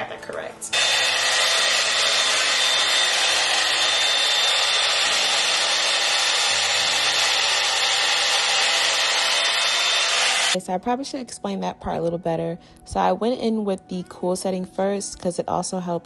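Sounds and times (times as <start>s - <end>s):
hair dryer brush blowing air: 0.7s - 10.6s
high motor whine: 0.7s - 10.6s.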